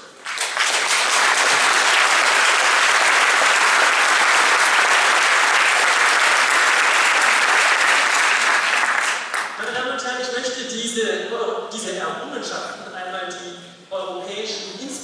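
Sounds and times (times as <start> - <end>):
large audience applauding: 0.0 - 9.6.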